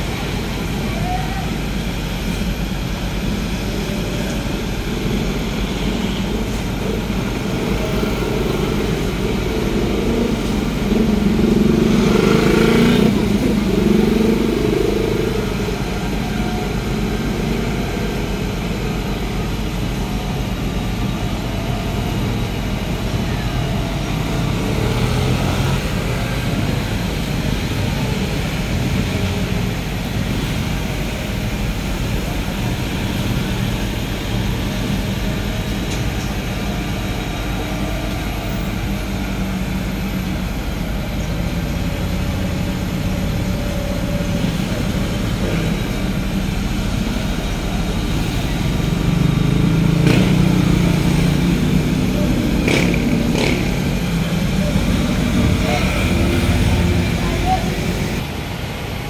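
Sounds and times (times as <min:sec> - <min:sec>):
hum of traffic engines and tyres: 0:00.0 - 0:59.0
motorcycle passing close: 0:08.4 - 0:15.5, 0:47.3 - 0:58.2.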